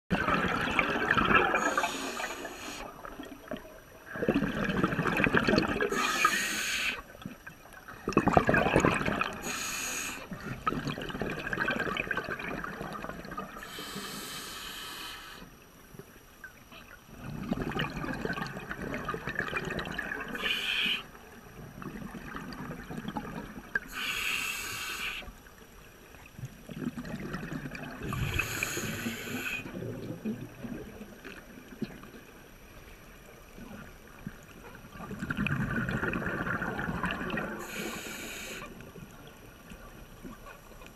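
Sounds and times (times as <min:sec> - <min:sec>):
exhaled bubbles rushing: 0:00.1 - 0:06.0, 0:07.4 - 0:09.5, 0:10.3 - 0:13.6, 0:17.1 - 0:20.5, 0:21.5 - 0:23.9, 0:26.6 - 0:32.2, 0:34.9 - 0:37.8
regulator inhale hiss: 0:01.6 - 0:03.0, 0:05.9 - 0:07.1, 0:09.4 - 0:10.4, 0:13.6 - 0:15.6, 0:20.3 - 0:21.1, 0:23.8 - 0:25.4, 0:28.1 - 0:29.8, 0:37.6 - 0:38.8.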